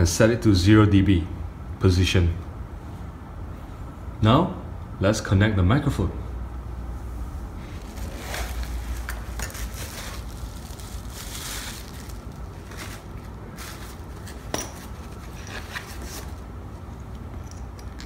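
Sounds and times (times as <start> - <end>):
plastic bubble wrap crinkling: 7.7 - 14.5.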